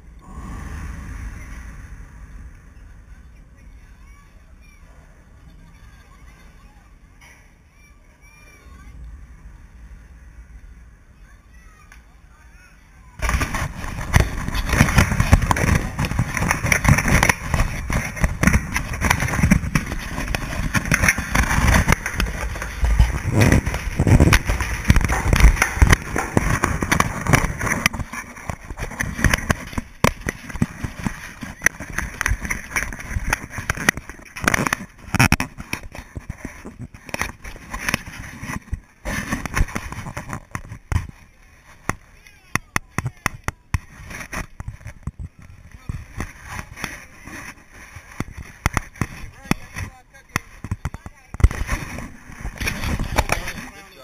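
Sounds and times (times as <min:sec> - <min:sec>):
wind buffeting microphone: 0:00.0 - 0:03.9, 0:13.2 - 0:41.2
crackling and scraping: 0:11.5 - 0:54.0.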